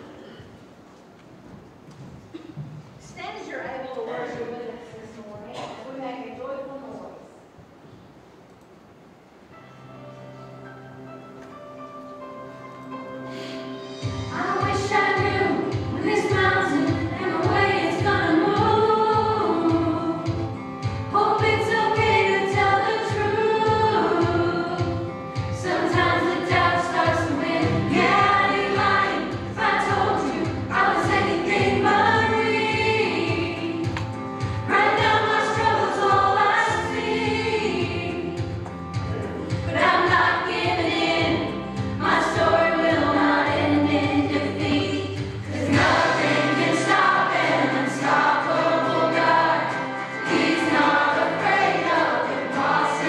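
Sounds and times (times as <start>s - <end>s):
youth choir singing in unison: 14.2s - 38.6s, 39.5s - 53.0s.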